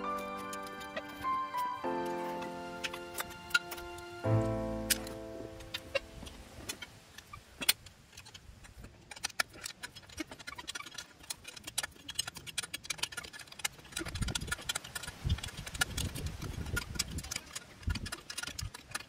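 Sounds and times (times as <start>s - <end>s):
metallic clicks of hand tools: 4.8s - 19.0s.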